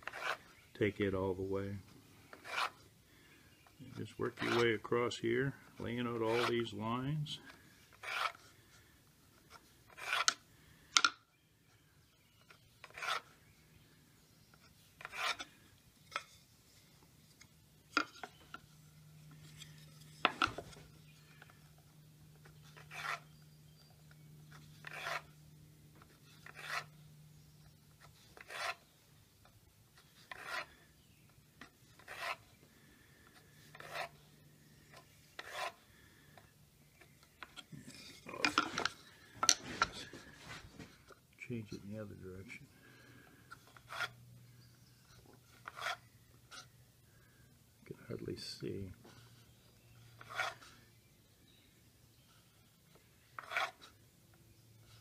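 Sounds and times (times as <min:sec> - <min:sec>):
pencil drawing on wood: 0:02.4 - 0:02.8, 0:07.9 - 0:08.5, 0:09.6 - 0:10.4, 0:12.8 - 0:13.3, 0:15.0 - 0:15.5, 0:22.6 - 0:23.3, 0:24.5 - 0:25.3, 0:26.3 - 0:26.9, 0:28.3 - 0:28.9, 0:30.0 - 0:30.8, 0:31.9 - 0:32.5, 0:33.6 - 0:34.3, 0:34.9 - 0:35.8, 0:45.6 - 0:46.6, 0:50.2 - 0:50.8, 0:53.4 - 0:53.9.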